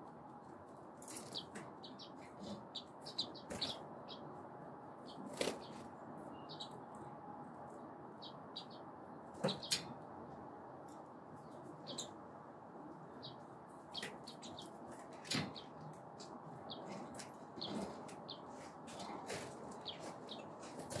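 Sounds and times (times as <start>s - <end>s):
birds chirping: 1.0s - 10.0s, 11.4s - 12.2s, 12.9s - 21.0s
wings fluttering: 5.2s - 5.9s, 18.9s - 21.0s.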